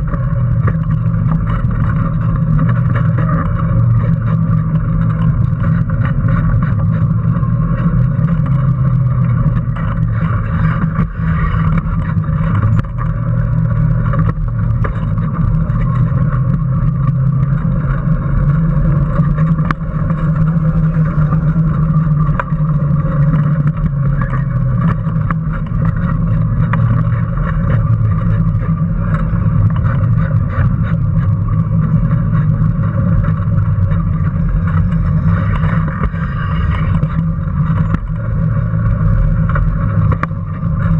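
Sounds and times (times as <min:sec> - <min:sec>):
electric motor drone: 0:00.0 - 0:40.9
frame rattling over asphalt: 0:00.0 - 0:40.9.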